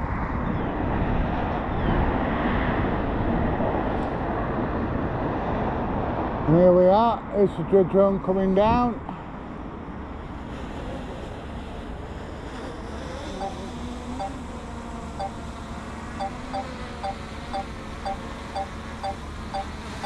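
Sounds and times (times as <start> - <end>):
drone propellers humming: 12.4 - 20.0
two-tone electronic beeps: 13.4 - 13.6, 14.2 - 14.4, 16.2 - 19.8.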